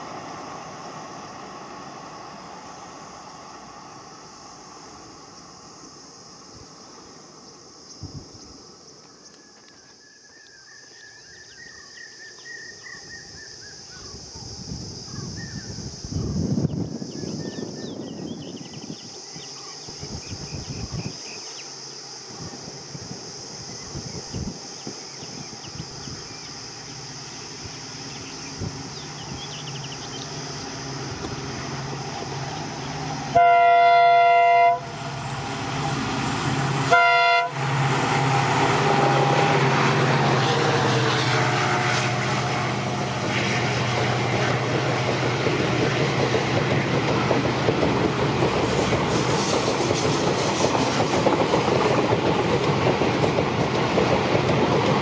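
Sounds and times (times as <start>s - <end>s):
diesel locomotive engine humming: 0.0s - 55.0s
train horn blasts: 33.2s - 35.8s, 36.5s - 43.7s.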